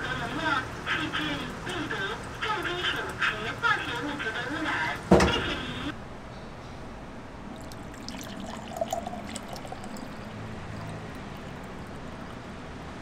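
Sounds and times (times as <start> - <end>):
water pouring into a glass: 7.5 - 12.6.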